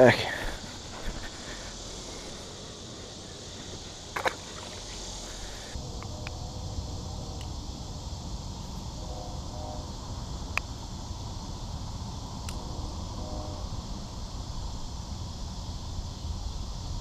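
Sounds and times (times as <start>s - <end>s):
high insect buzz: 0.0s - 17.0s
fish splashing into water: 4.1s - 5.0s.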